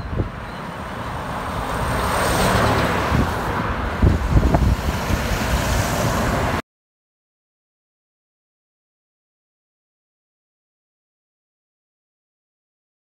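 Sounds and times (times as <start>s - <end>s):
wind on microphone: 0.0s - 0.5s, 1.4s - 6.6s.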